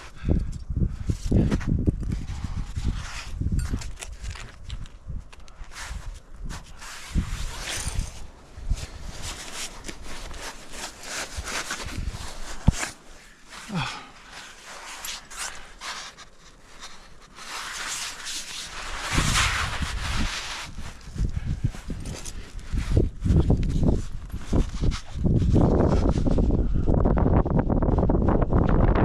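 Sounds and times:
climber scraping on rock: 5.6 - 26.4.

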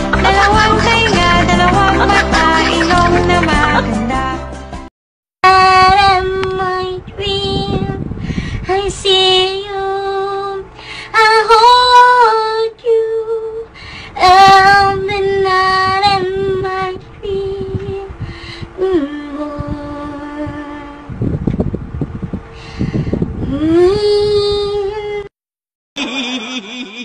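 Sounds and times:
high voice singing: 0.0 - 4.4.

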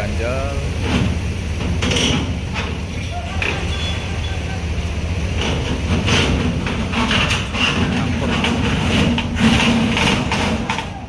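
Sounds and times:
truck diesel engine running: 0.0 - 11.0
clatter of sharp knocks: 5.4 - 11.0.

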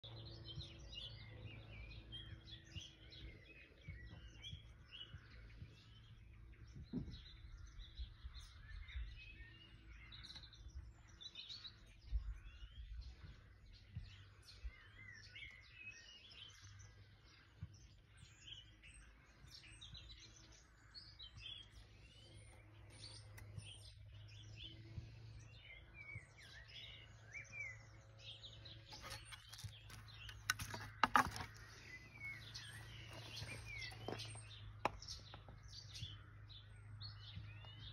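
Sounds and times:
songbirds chirping and trilling: 0.0 - 37.9.

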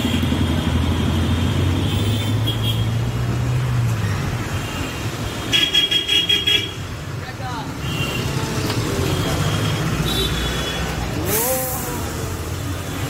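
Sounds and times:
street traffic noise: 0.0 - 13.0.

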